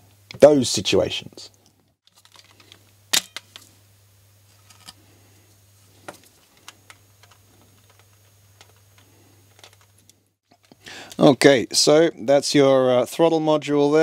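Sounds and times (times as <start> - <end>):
plastic parts clicking and tapping: 6.0 - 11.2.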